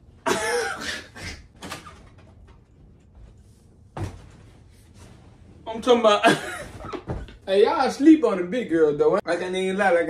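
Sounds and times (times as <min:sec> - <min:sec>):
knocks on floor: 0:06.8 - 0:07.4.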